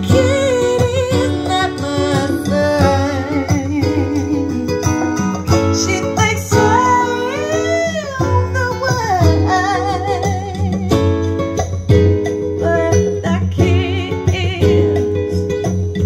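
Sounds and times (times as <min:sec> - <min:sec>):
song with guitar and singing: 0:00.0 - 0:16.0.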